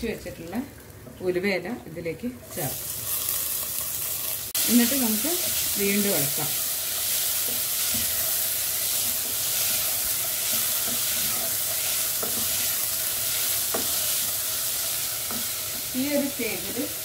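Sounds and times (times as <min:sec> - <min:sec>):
vegetables sizzling in hot oil: 0:00.0 - 0:17.0
spatula stirring: 0:05.3 - 0:16.6.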